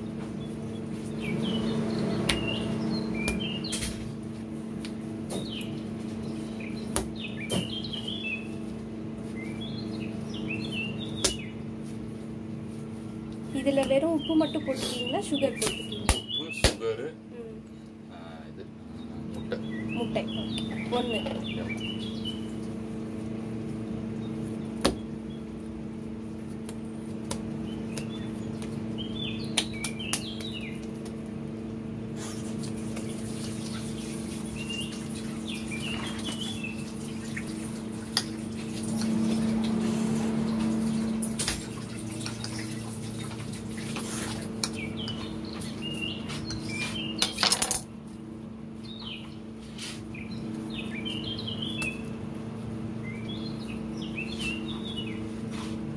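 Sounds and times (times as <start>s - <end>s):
low hum: 0.0s - 16.4s, 17.1s - 55.9s
birds chirping: 0.0s - 55.8s
dough being kneaded by hand: 22.9s - 31.4s.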